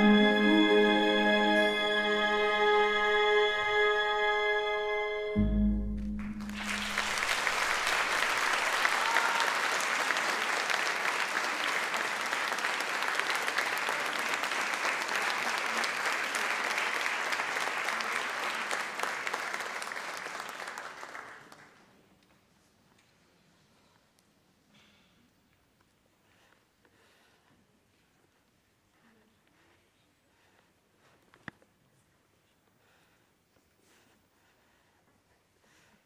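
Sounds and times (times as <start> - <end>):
audience applauding: 6.1 - 22.0.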